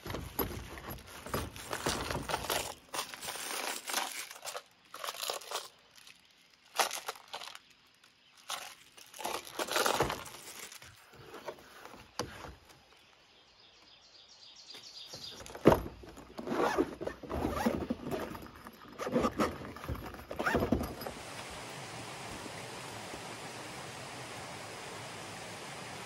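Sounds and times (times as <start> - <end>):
packaging rustling and scraping: 0.0 - 12.6, 15.4 - 21.1
flowing creek water: 20.4 - 26.0.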